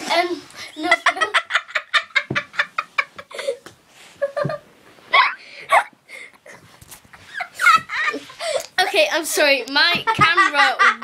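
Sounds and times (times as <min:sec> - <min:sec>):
girl laughing hard: 0:07.1 - 0:08.6.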